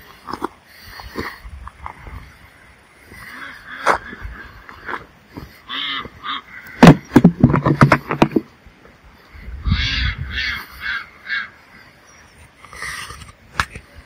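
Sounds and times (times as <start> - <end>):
poultry calling harshly: 2.2 - 7.2, 9.2 - 13.1
sharp clicks and knocks: 6.8 - 8.5.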